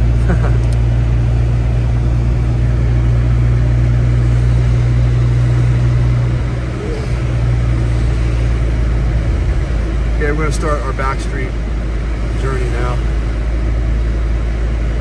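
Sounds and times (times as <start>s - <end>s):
car engine drone: 0.0s - 15.0s.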